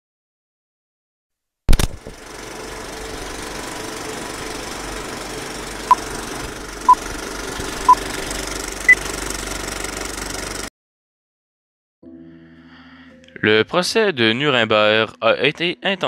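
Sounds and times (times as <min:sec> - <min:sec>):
film projector rattle: 0:01.7 - 0:10.7.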